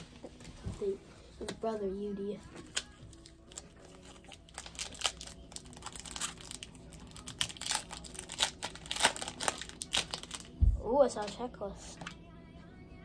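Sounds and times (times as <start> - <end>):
plastic wrapper tearing and crinkling: 2.7 - 10.6.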